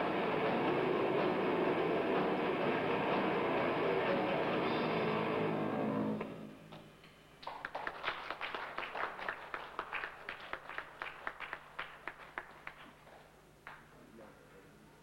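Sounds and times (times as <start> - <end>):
audience clapping: 7.4 - 14.1.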